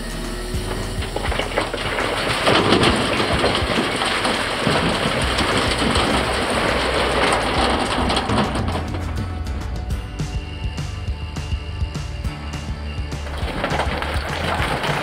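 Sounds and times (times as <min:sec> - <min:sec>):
loader engine running: 0:00.0 - 0:15.0
rocks clattering into steel trailer: 0:00.4 - 0:15.0.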